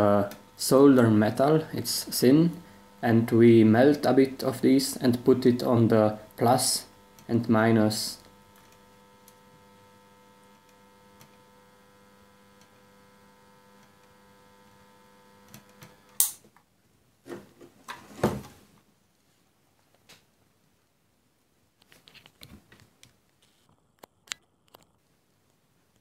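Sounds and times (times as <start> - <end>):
faint electrical hum: 0.0 - 26.0
sharp click: 15.6 - 16.5.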